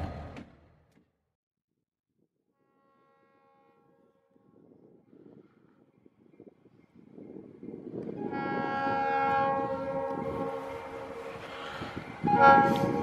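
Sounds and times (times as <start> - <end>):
passing train rumble: 0.0 - 0.9, 3.1 - 13.0
locomotive air horn chord: 2.5 - 4.8, 8.1 - 13.0.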